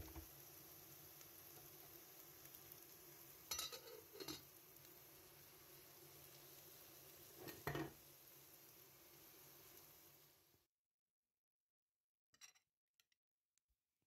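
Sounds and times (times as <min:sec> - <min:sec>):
vegetables frying in oil: 0:00.0 - 0:10.7.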